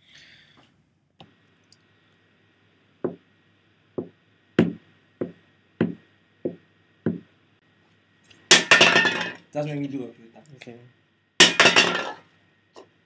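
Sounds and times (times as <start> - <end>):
sneaker footsteps on hard surface: 4.0 - 7.3.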